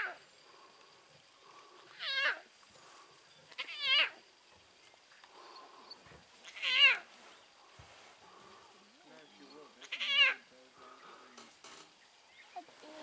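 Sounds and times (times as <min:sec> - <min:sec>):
lion cub mewing: 0:01.9 - 0:02.5, 0:03.5 - 0:04.2, 0:06.4 - 0:07.1, 0:09.8 - 0:10.4.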